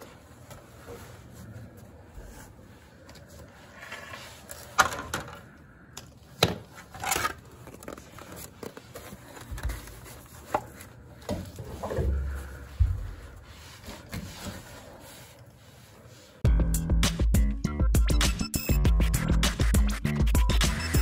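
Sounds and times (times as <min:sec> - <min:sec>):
handling knocks and scrapes: 0:06.4 - 0:15.6.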